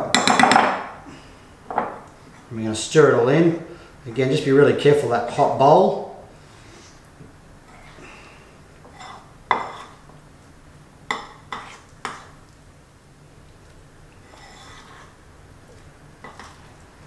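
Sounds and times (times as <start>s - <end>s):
spoon stirring thick mixture: 8.8s - 10.2s, 11.1s - 12.6s, 14.1s - 17.0s.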